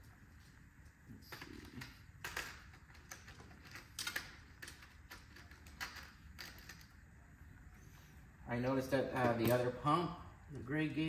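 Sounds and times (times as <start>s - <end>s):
small parts and tool clicking: 1.3s - 7.0s.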